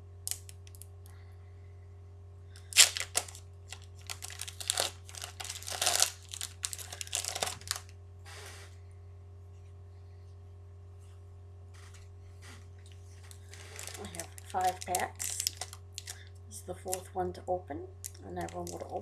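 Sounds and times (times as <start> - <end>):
foil pack tearing: 2.6 - 7.9, 13.2 - 16.2, 18.0 - 19.0
wrapper crinkling: 2.6 - 7.9, 12.8 - 17.1, 18.0 - 19.0.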